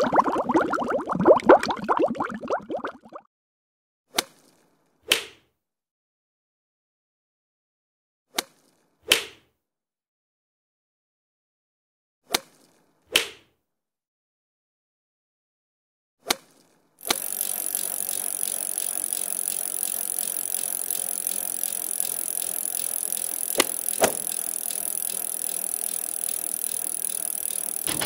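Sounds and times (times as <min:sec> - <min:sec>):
mechanical rattling with high hiss: 0:17.0 - 0:28.0
sharp clicks: 0:17.0 - 0:28.0.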